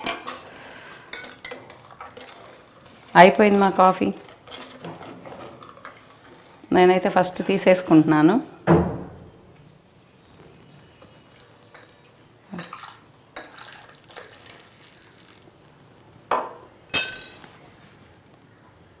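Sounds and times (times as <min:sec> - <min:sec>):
coffee pouring: 0:00.5 - 0:03.8, 0:10.7 - 0:17.4.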